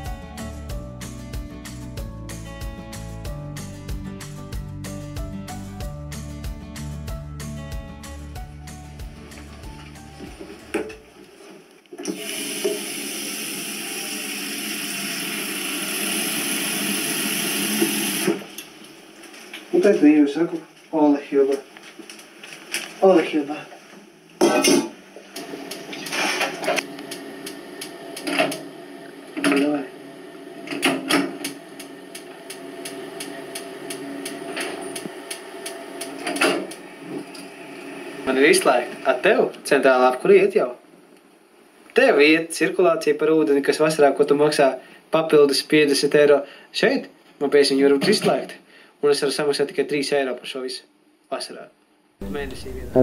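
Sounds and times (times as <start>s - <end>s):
tap water running into sink: 12.0s - 18.4s
spark igniter clicking: 26.8s - 28.6s, 30.8s - 37.4s
low steady hum: 52.2s - 53.0s.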